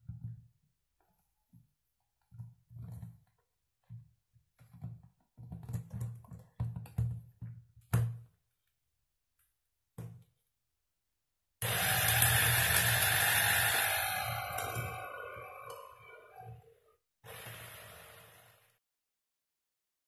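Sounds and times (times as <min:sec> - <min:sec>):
electric chopper motor bursts: 0:11.6 - 0:15.6, 0:17.3 - 0:18.7.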